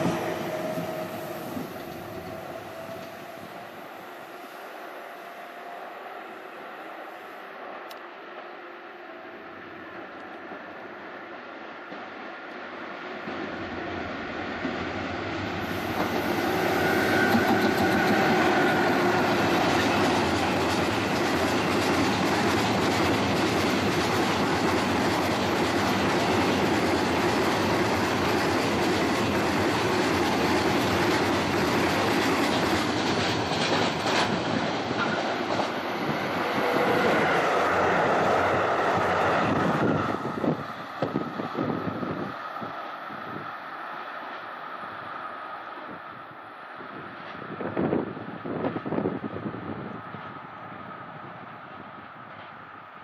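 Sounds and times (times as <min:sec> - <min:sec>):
freight train wheels rumbling and clacking: 0:00.0 - 0:04.3, 0:13.2 - 0:43.3, 0:46.9 - 0:53.0.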